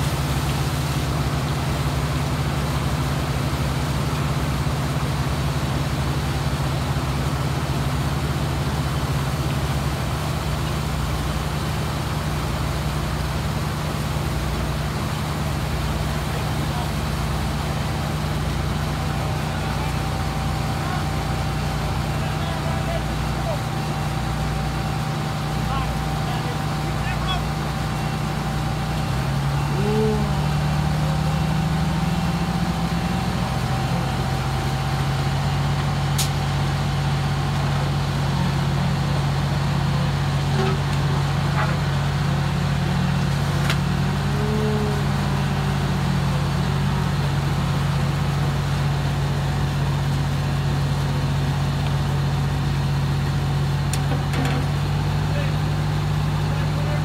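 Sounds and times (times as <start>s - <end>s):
diesel engines running: 0.0s - 57.0s.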